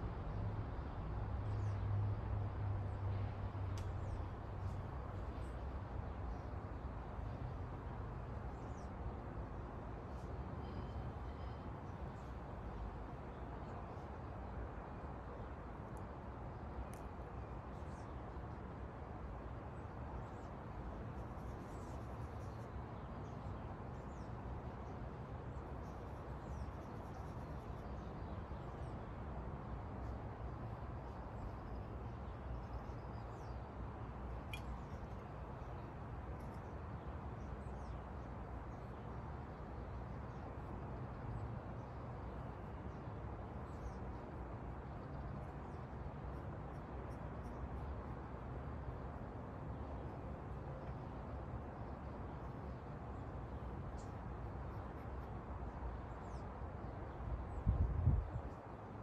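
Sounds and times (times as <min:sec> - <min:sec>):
outdoor background noise: 0:00.0 - 0:59.0
faint bird chirps: 0:10.6 - 0:12.3, 0:34.4 - 0:35.3.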